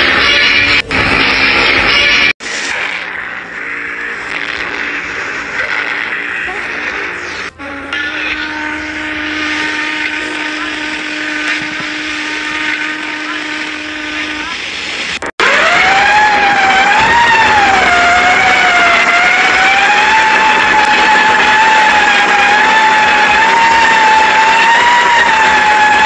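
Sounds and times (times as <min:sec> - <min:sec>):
higher wavering ship horn: 0:07.5 - 0:14.6, 0:15.4 - 0:26.0
low ship horn: 0:07.5 - 0:14.6, 0:15.4 - 0:26.0.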